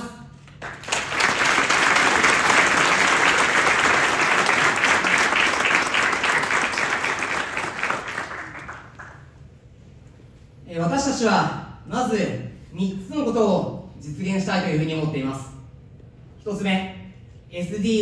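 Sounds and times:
audience applauding: 0:00.6 - 0:09.3.

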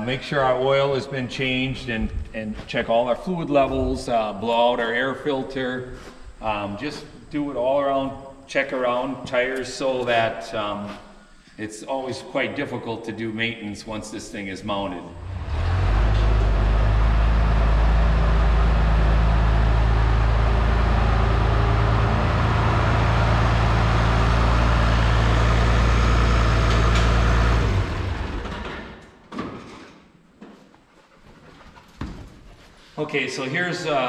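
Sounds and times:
tractor engine running: 0:15.2 - 0:29.0.

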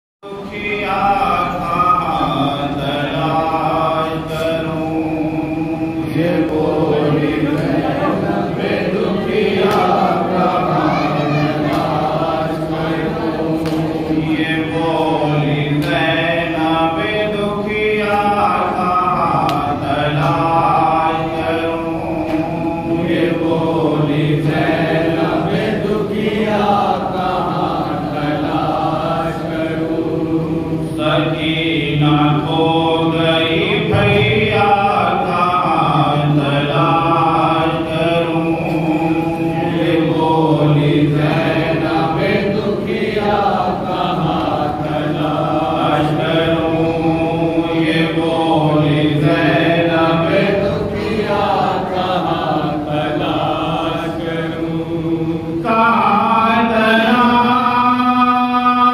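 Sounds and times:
man chanting a lament: 0:28.2 - 0:58.9.

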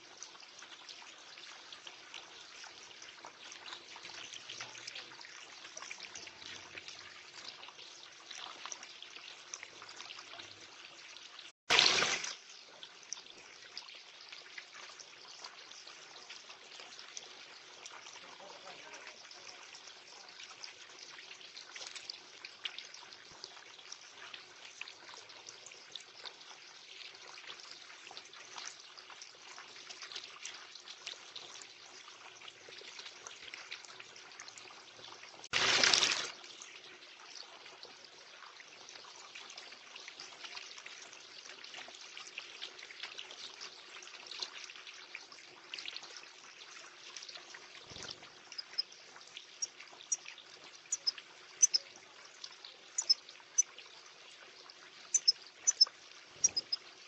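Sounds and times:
water feature trickling: 0:00.0 - 0:57.0
bird splashing in bath water: 0:11.7 - 0:12.4, 0:35.5 - 0:36.4.

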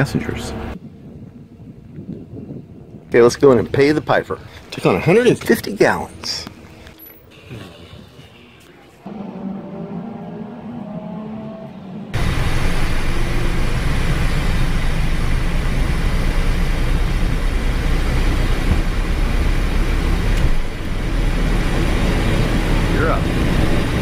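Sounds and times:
runway rumble: 0:00.0 - 0:24.0
jet engines at takeoff power: 0:09.1 - 0:24.0.

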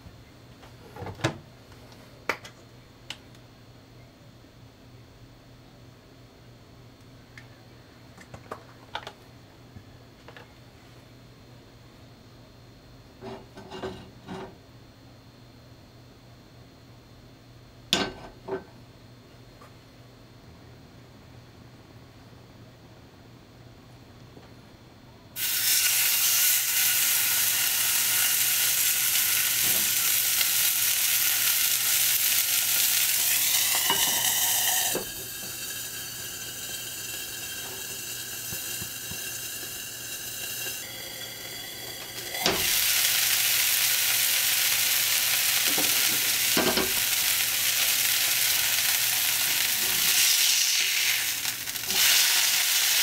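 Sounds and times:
meat sizzling in a skillet: 0:25.4 - 0:53.0.

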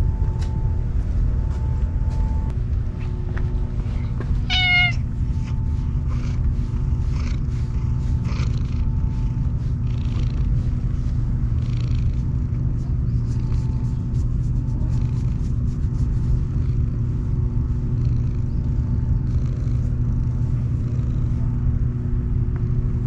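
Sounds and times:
steady low rumble: 0:00.0 - 0:23.0
cat meowing: 0:04.5 - 0:05.0.

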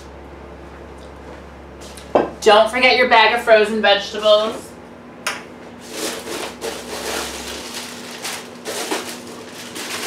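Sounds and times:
plastic bag rustling and crinkling: 0:05.8 - 0:10.0.

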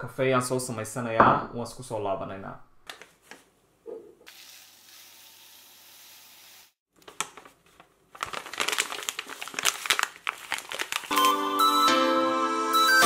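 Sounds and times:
paper bag crinkling and tearing: 0:07.0 - 0:11.6.

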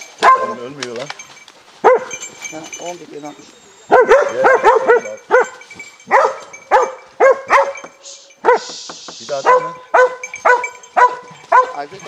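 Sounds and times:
dog barking: 0:00.2 - 0:00.6, 0:01.8 - 0:02.2, 0:03.9 - 0:08.7, 0:09.4 - 0:12.0.

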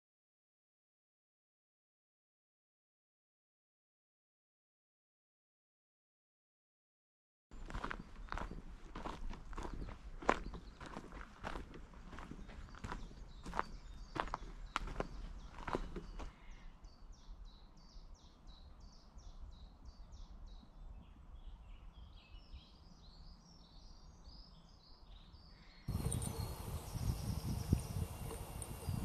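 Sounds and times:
songbird singing: 0:07.5 - 0:29.0
footsteps: 0:07.6 - 0:16.3.

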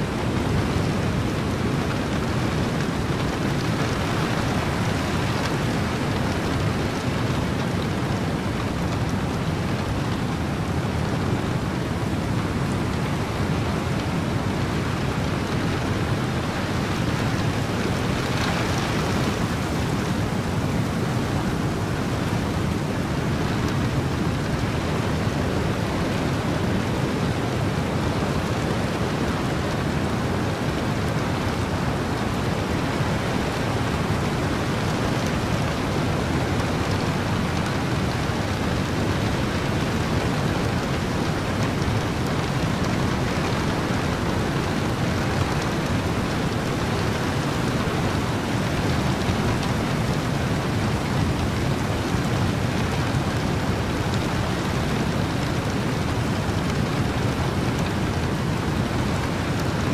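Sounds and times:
heavy rain: 0:00.0 - 0:59.9
ocean surf: 0:00.0 - 0:59.9
wind: 0:00.0 - 0:59.9.

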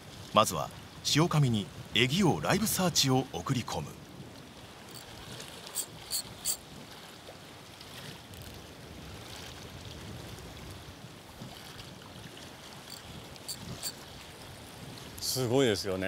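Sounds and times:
water lapping on rocky shore: 0:04.1 - 0:15.7.

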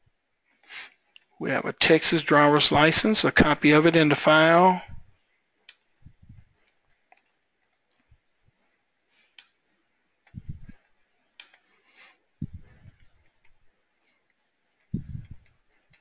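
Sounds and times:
computer mouse clicks: 0:10.2 - 0:11.7.

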